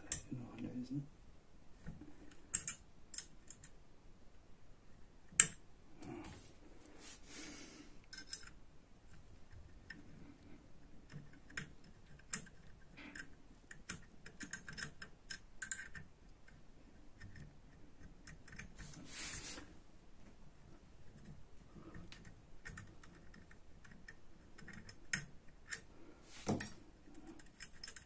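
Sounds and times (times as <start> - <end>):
hex key clicking on screws: 11.1 - 16.1, 27.4 - 28.0
scraping rustle: 18.8 - 19.8.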